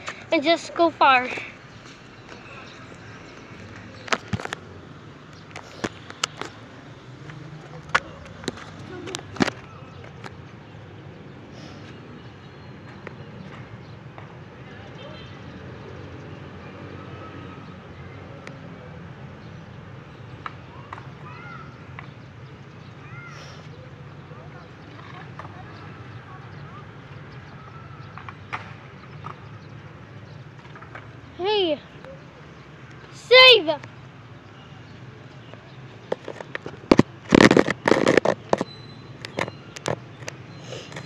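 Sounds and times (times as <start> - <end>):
crackling and rustling: 1.3 - 10.6, 35.5 - 41.0.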